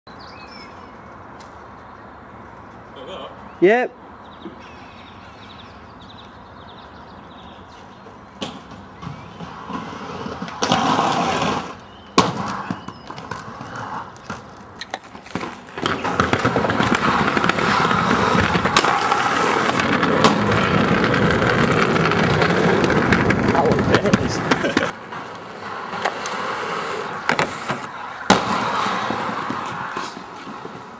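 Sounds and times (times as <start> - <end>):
skate wheels rolling over paving: 7.4 - 30.9
skate wheels knocking on paving: 8.0 - 30.9.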